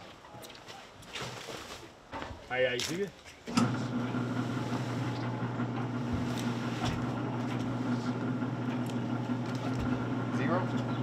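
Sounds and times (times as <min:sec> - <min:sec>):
electric hoist motor humming: 0:03.5 - 0:11.0.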